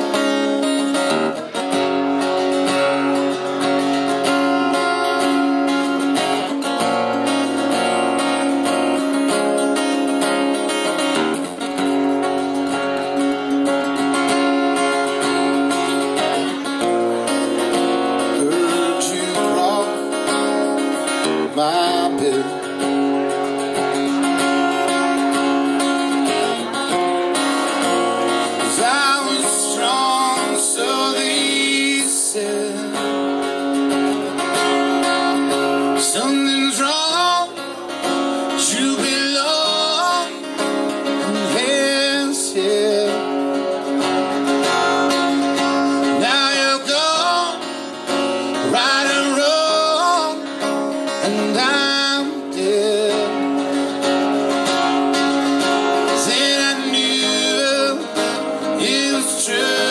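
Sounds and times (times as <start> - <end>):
strummed acoustic guitar: 0.0 - 59.9
person singing: 18.1 - 20.9, 21.5 - 22.8, 28.5 - 33.2, 36.0 - 37.8, 38.5 - 43.6, 45.6 - 53.8, 56.0 - 59.9.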